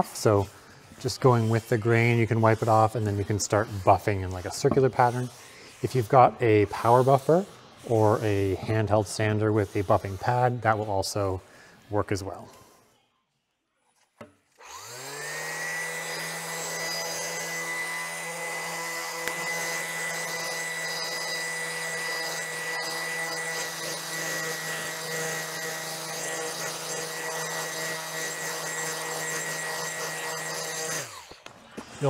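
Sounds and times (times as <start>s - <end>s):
orbital sander whining: 14.6s - 31.4s.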